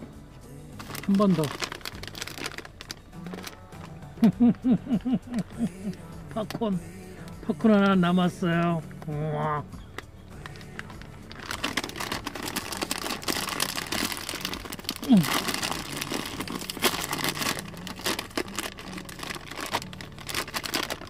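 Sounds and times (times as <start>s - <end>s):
plastic bag crinkling: 0.8s - 3.9s, 10.4s - 21.0s.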